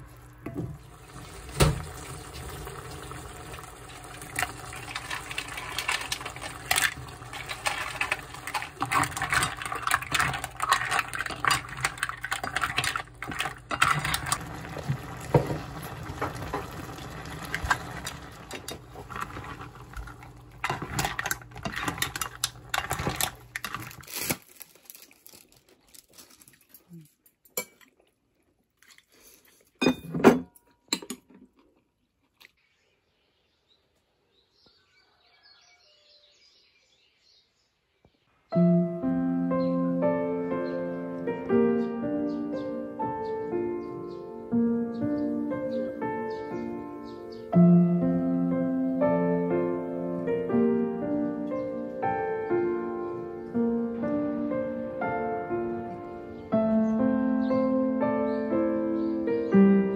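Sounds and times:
sauce bubbling and hissing: 0:00.1 - 0:06.4, 0:14.2 - 0:20.6
utensil clinking and scraping pot: 0:04.1 - 0:24.3.

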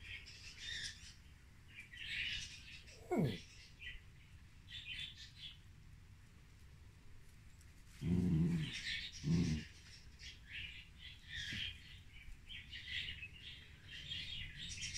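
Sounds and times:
faint birds chirping: 0:00.0 - 0:06.1, 0:07.1 - 0:14.9
dog growling: 0:02.9 - 0:03.4, 0:08.0 - 0:09.9.

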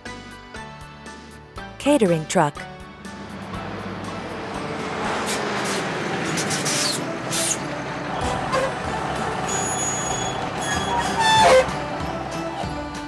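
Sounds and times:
large truck running: 0:01.1 - 0:13.0
pitched squeal: 0:05.0 - 0:12.6.

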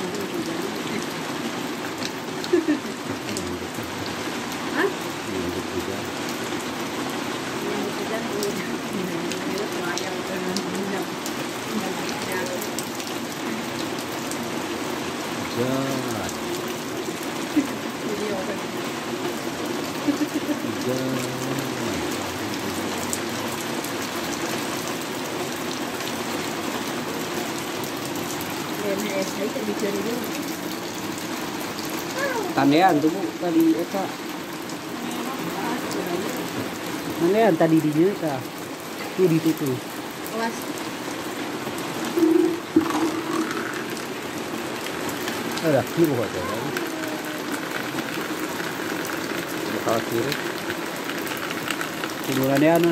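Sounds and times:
rain falling on pavement: 0:00.0 - 0:52.9
splashes: 0:39.0 - 0:52.9.

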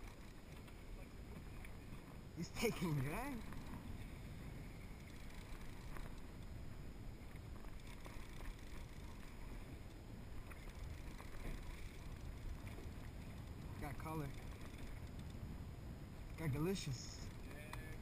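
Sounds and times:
water around a boat: 0:00.0 - 0:18.0
wind: 0:00.0 - 0:18.0
faint clicks: 0:17.3 - 0:18.0.

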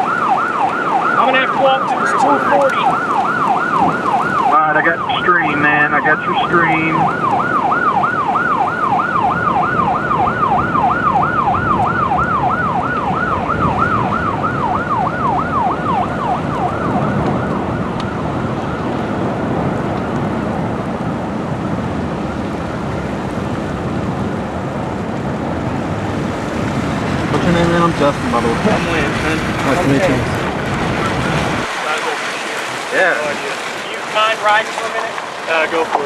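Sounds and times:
siren yelping: 0:00.0 - 0:19.8
wind and road noise: 0:00.0 - 0:36.0.

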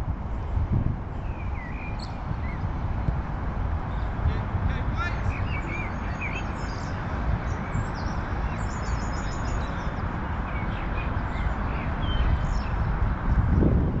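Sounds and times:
wind rumbling on microphone: 0:00.0 - 0:14.0
small birds chirping: 0:01.2 - 0:03.1, 0:03.8 - 0:13.0.

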